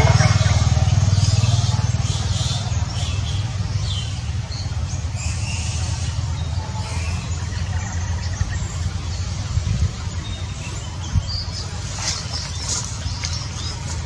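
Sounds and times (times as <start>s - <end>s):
low engine rumble: 0.0s - 14.0s.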